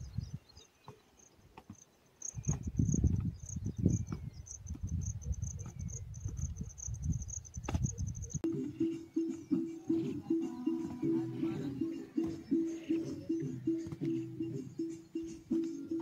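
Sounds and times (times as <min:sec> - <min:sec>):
crickets chirping: 0:00.0 - 0:09.8.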